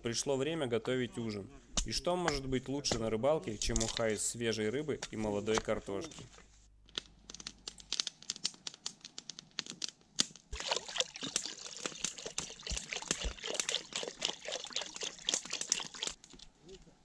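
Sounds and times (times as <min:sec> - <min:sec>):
water pouring into metal pot: 0:10.6 - 0:16.2.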